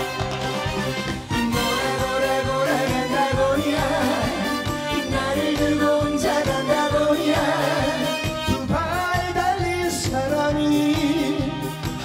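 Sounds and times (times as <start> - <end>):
backing music with steady beat: 0.0 - 12.0
man singing into a microphone: 2.6 - 11.9.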